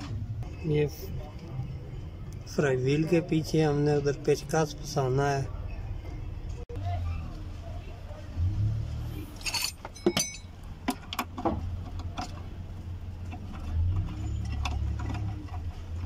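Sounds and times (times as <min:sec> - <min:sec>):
metal clinking: 0:09.3 - 0:12.5
hand tools and bolts rattling: 0:09.4 - 0:16.0.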